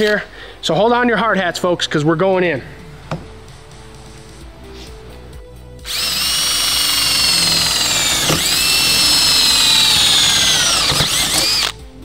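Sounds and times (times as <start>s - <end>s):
cordless drill whining through metal: 5.8s - 11.8s.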